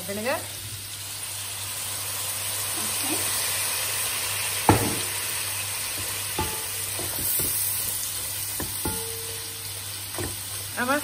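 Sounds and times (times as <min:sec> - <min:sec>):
food sizzling in a pan: 0:00.0 - 0:11.0
spatula knocking against pan: 0:06.4 - 0:07.6, 0:08.5 - 0:09.5.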